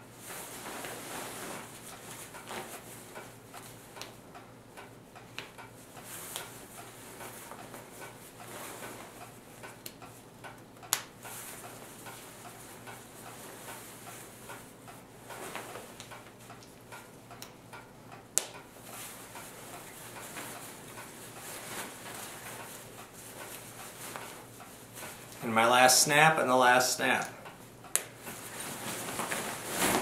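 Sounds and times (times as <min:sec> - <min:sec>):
fabric rustling: 0:00.3 - 0:02.9, 0:19.0 - 0:24.4, 0:28.2 - 0:30.0.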